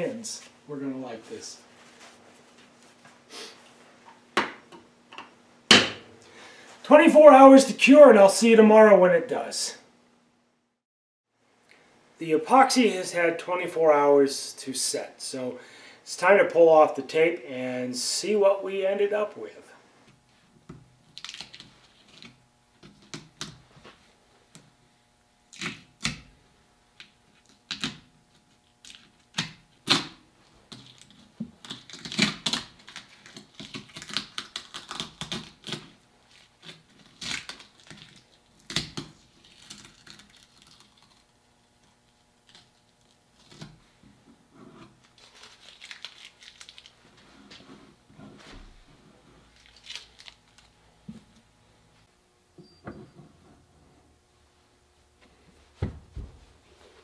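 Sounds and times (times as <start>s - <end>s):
duct tape ripping: 21.1s - 23.6s, 25.5s - 26.3s, 27.0s - 28.1s, 28.7s - 41.4s, 42.4s - 43.8s, 44.9s - 47.0s, 49.6s - 50.7s.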